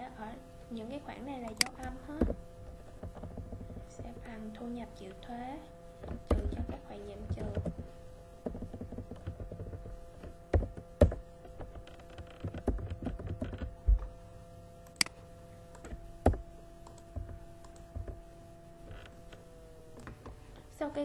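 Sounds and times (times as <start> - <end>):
computer keyboard typing: 6.0 - 7.9, 8.5 - 14.1, 15.7 - 18.2.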